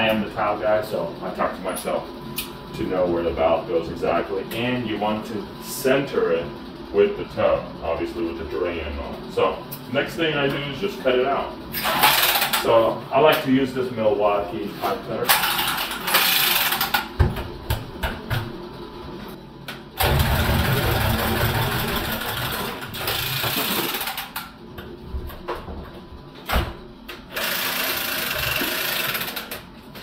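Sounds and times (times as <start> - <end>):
cordless pipe cutter running: 20.0 - 24.4, 27.3 - 29.6.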